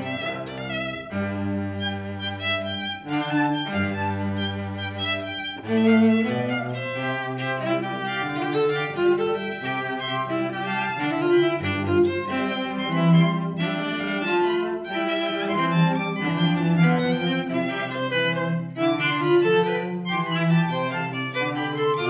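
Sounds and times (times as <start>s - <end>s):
low cello line: 0.0s - 22.0s
violin melody: 0.0s - 22.0s.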